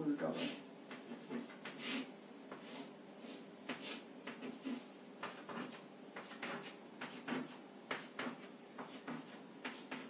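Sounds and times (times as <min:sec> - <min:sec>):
chalk scratching on blackboard: 0:00.3 - 0:10.0.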